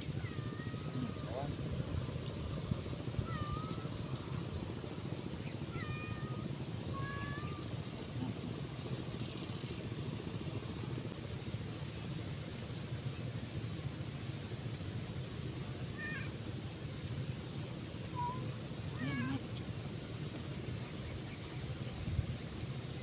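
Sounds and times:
cat meowing: 0:18.2 - 0:19.4.

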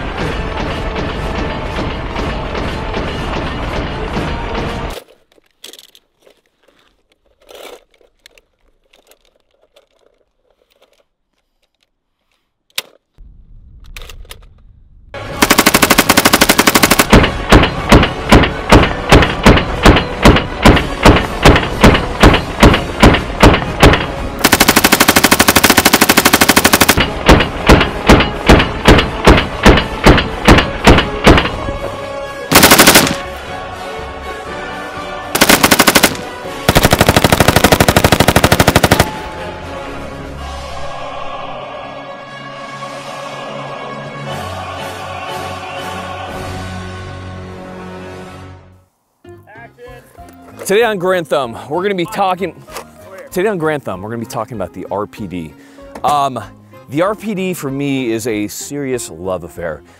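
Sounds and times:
machine gun firing bursts: 0:15.4 - 0:17.3, 0:24.4 - 0:27.8, 0:32.5 - 0:33.3, 0:35.4 - 0:39.2.

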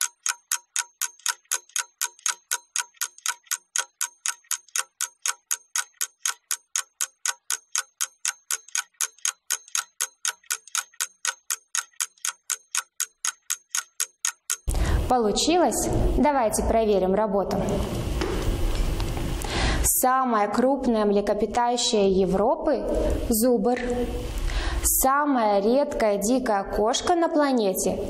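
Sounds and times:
clock ticking: 0:00.0 - 0:14.7.

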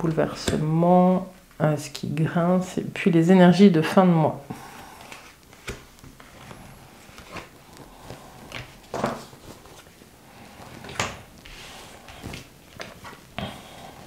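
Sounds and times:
cards sliding and tapping: 0:05.0 - 0:09.9.

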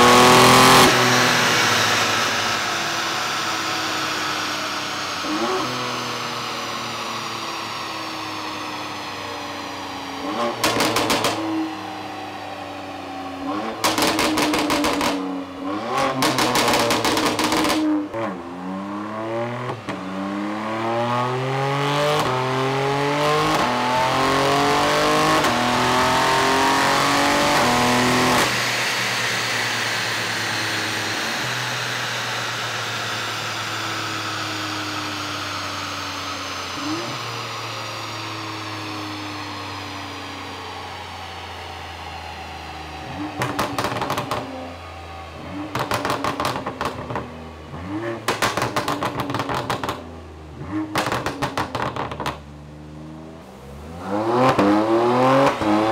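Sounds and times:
car engine revving and idling: 0:00.0 - 0:55.9.

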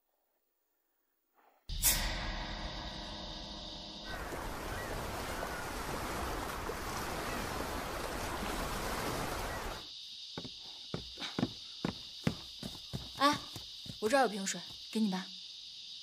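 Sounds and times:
insects chirring: 0:01.7 - 0:16.0
ocean waves breaking: 0:04.2 - 0:09.8.

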